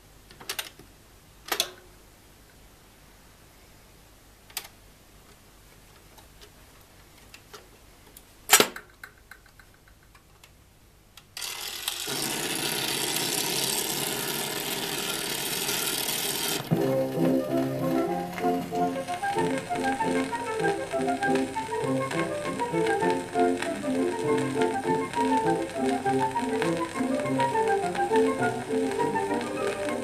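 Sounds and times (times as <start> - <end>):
record surface noise hiss: 0.0 - 30.0
faint mechanism ticks: 9.0 - 30.0.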